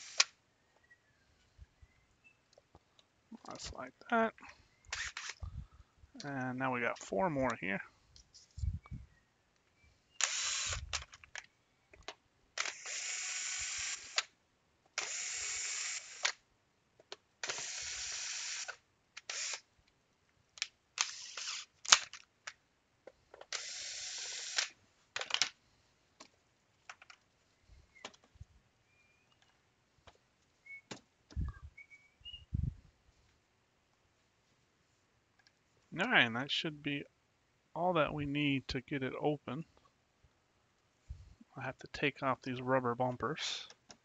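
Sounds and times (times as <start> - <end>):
electric screwdriver running: 10.2 - 10.9, 12.6 - 14.3, 15.0 - 16.3, 17.4 - 19.6, 21.0 - 21.7, 23.5 - 24.7.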